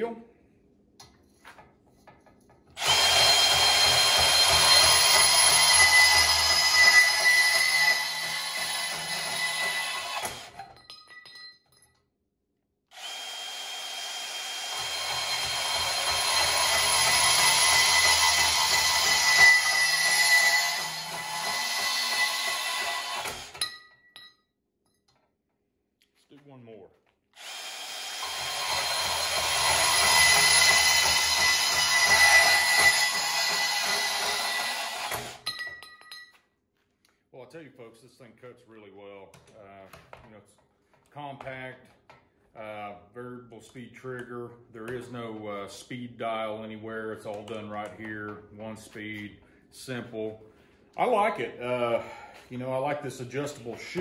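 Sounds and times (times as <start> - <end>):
bandsaw cutting steel: 2.8 - 10.6, 12.9 - 23.8, 27.4 - 35.5
metallic clink and ringing: 10.6 - 12.0, 23.6 - 25.0, 35.4 - 36.4.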